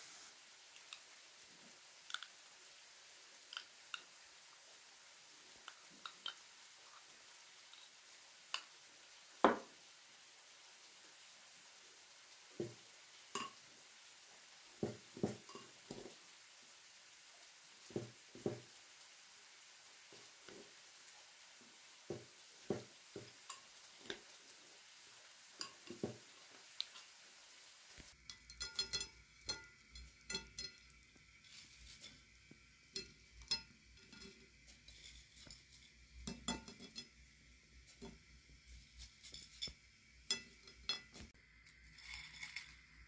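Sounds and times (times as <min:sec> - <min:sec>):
potato sticks tapping on plate: 0:02.1 - 0:02.3, 0:05.6 - 0:06.4, 0:09.4 - 0:09.7, 0:12.6 - 0:13.6, 0:14.8 - 0:16.2, 0:17.9 - 0:18.8, 0:22.1 - 0:24.3, 0:25.6 - 0:27.1, 0:28.2 - 0:31.0
spoons clinking against bowl: 0:13.3 - 0:13.6, 0:15.2 - 0:16.1, 0:23.2 - 0:24.2, 0:25.6 - 0:26.2, 0:28.2 - 0:31.0, 0:32.9 - 0:37.2, 0:39.2 - 0:41.2.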